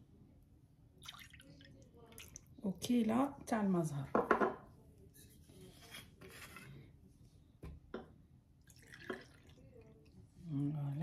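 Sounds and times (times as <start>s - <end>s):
liquid trickling into a cup: 1.0s - 2.5s, 8.6s - 10.2s.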